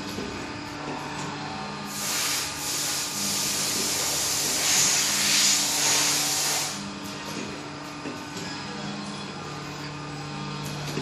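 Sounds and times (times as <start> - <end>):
low machine hum: 0.0 - 11.0
loud rushing hiss: 1.9 - 6.8.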